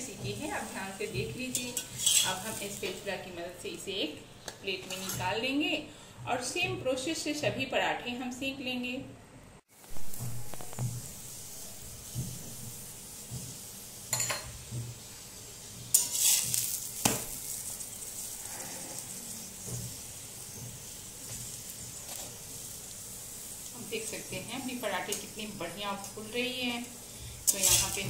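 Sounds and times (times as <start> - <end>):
flatbread sizzling in oil: 0.0 - 3.7, 9.7 - 28.0
spatula scraping a griddle: 0.1 - 3.0, 4.8 - 5.4, 15.8 - 24.4, 25.0 - 28.0.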